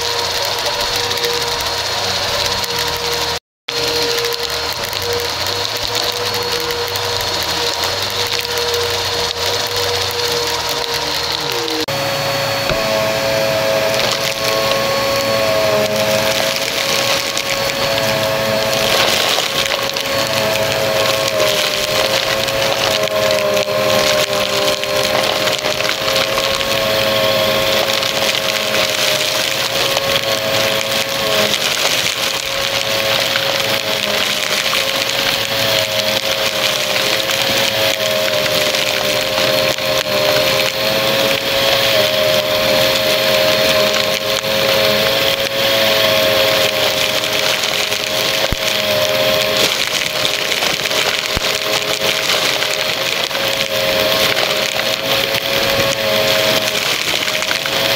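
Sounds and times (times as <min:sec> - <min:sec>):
confetti crackling in nozzle: 0:00.0 - 0:12.0, 0:13.7 - 0:57.9
vacuum cleaner motor whine: 0:00.0 - 0:57.9.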